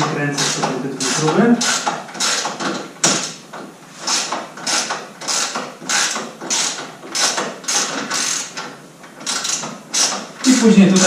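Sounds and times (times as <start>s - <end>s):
ratchet wrench clicking: 0.4s - 3.4s, 4.0s - 11.0s.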